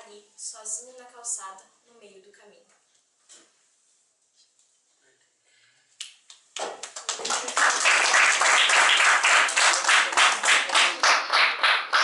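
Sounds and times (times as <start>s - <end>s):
people applauding: 6.6s - 12.0s.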